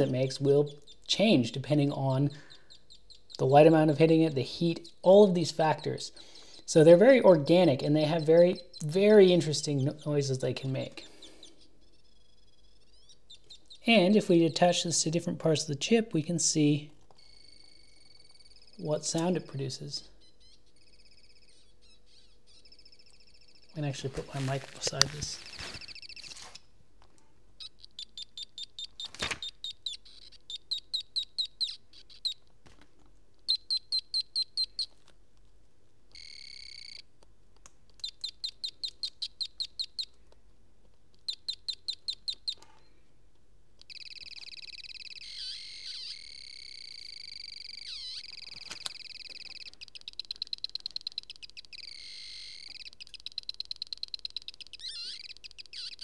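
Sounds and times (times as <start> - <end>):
high-pitched chirping pulses: 0.0 - 14.7, 17.2 - 19.5, 20.1 - 24.0, 24.9 - 26.4, 27.6 - 32.4, 33.5 - 34.9, 38.0 - 40.1, 41.2 - 42.6, 43.9 - 56.0.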